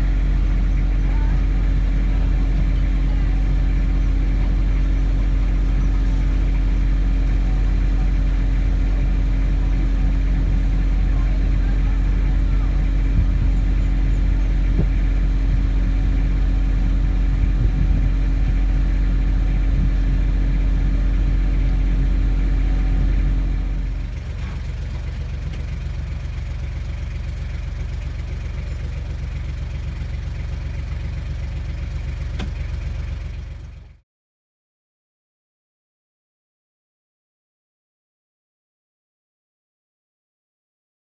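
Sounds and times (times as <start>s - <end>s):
boat engine running: 0.0s - 33.7s.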